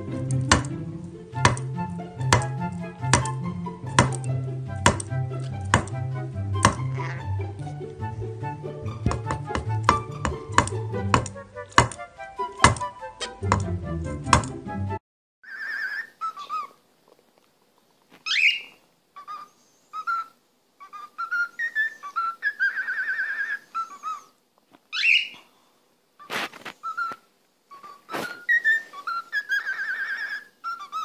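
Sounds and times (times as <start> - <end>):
cockatiel whistling: 6.6 - 7.3, 15.5 - 16.8, 18.2 - 25.4, 26.2 - 31.0.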